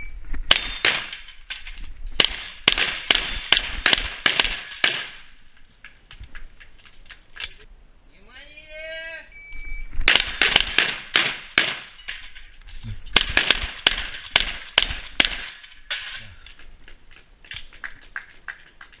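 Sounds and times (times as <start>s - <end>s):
rapid shotgun fire: 2.2s - 5.3s, 10.1s - 11.9s, 13.1s - 15.6s.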